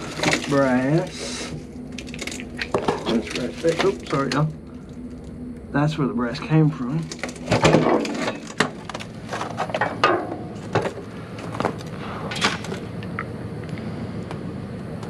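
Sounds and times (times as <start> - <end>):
steady low hum: 0.0 - 15.0
scrap metal clattering: 7.1 - 12.8.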